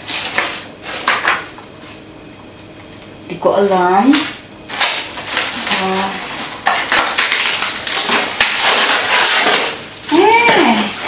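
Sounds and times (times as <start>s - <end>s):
packaging crinkling and rustling: 4.7s - 11.0s.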